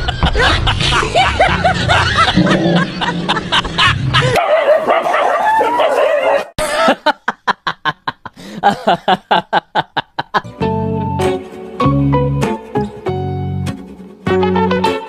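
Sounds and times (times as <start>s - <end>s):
music with plucked notes: 10.4s - 15.0s.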